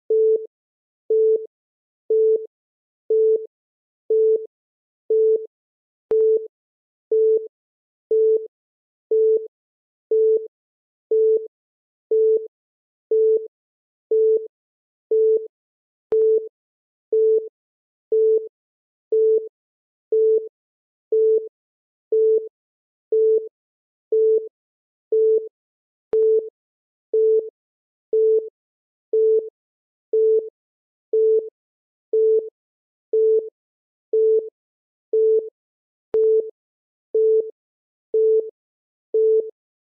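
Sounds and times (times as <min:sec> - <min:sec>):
low electronic timer beeps: 0:00.1 - 0:00.5, 0:01.1 - 0:01.5, 0:02.1 - 0:02.5, 0:03.1 - 0:03.5, 0:04.1 - 0:04.5, 0:05.1 - 0:05.5, 0:06.1 - 0:06.5, 0:07.1 - 0:07.5, 0:08.1 - 0:08.5, 0:09.1 - 0:09.5, 0:10.1 - 0:10.5, 0:11.1 - 0:11.5, 0:12.1 - 0:12.5, 0:13.1 - 0:13.5, 0:14.1 - 0:14.5, 0:15.1 - 0:15.5, 0:16.1 - 0:16.5, 0:26.1 - 0:26.5, 0:36.1 - 0:36.5, 0:37.2 - 0:37.5.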